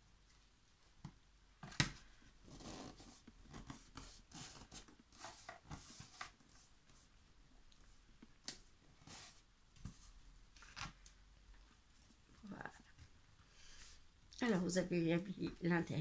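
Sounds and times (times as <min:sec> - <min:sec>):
paper and cardboard rustling: 0:02.0 - 0:07.1.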